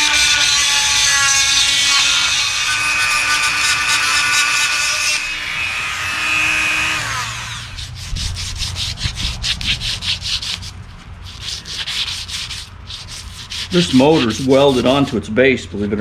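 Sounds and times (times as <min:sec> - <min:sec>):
small power tool whining: 0:00.0 - 0:07.9
hand-sanding strokes: 0:00.0 - 0:15.3.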